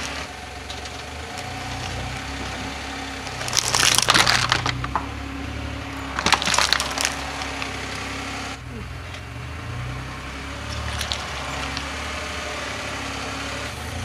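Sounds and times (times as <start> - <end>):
cardboard boxes crushed under tyre: 0.0 - 5.1, 6.1 - 7.8, 10.7 - 11.9
car engine idling: 0.0 - 14.0.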